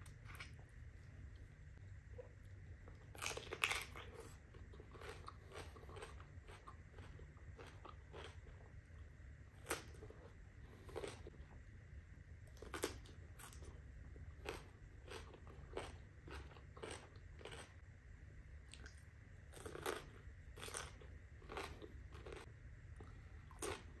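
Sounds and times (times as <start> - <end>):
cucumber being chewed: 2.1 - 11.4, 12.4 - 17.8, 18.6 - 24.0.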